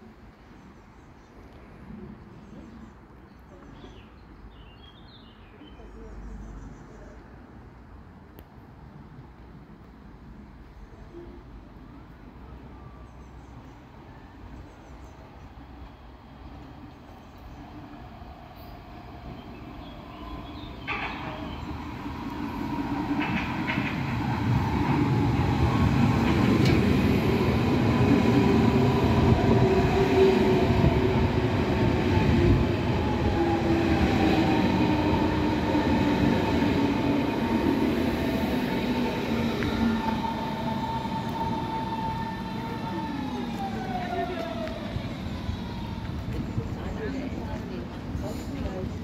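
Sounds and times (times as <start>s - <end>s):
electric train arriving and braking: 12.4s - 49.0s.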